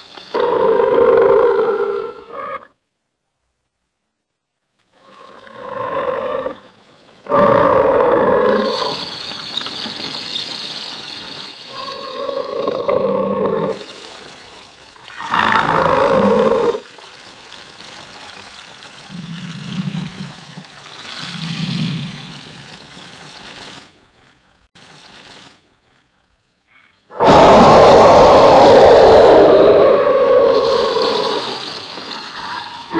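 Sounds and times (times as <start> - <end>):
deep alligator roars: 5.0 - 6.7, 7.3 - 9.0, 11.8 - 13.8, 15.1 - 16.8, 27.1 - 31.7.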